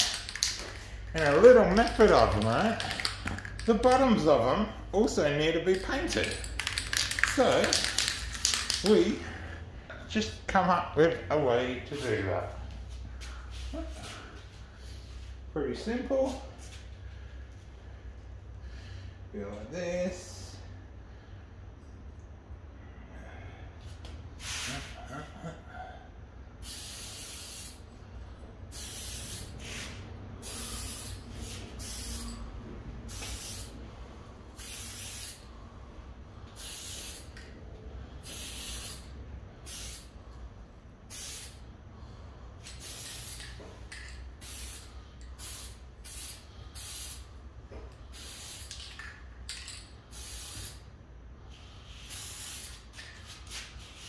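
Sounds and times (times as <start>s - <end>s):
spray paint can hissing: 0.0s - 1.4s, 6.2s - 8.9s, 26.6s - 27.8s, 28.7s - 32.4s, 33.1s - 33.8s, 34.5s - 35.5s, 36.6s - 37.4s, 38.2s - 40.1s, 41.1s - 41.6s, 42.6s - 47.3s, 48.1s - 49.2s, 50.1s - 50.8s, 51.6s - 54.0s.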